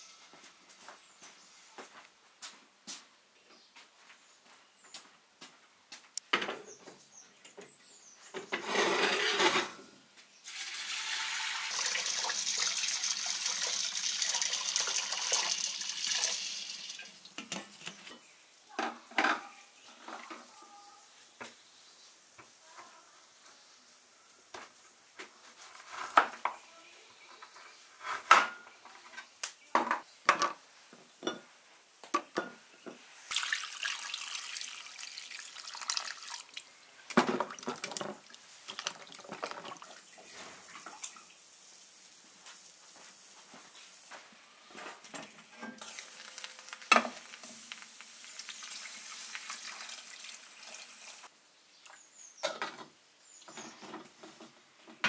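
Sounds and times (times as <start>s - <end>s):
water pouring into pot: 10.5s - 17.5s, 33.3s - 41.5s, 45.8s - 51.3s.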